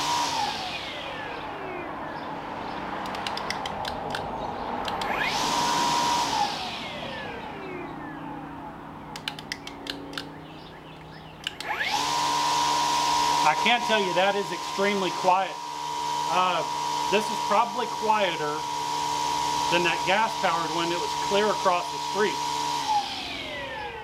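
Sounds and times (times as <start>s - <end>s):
trimmer line whipping the air: 0.0s - 1.6s, 2.9s - 7.9s, 11.4s - 24.0s
string trimmer motor whine: 0.0s - 24.0s.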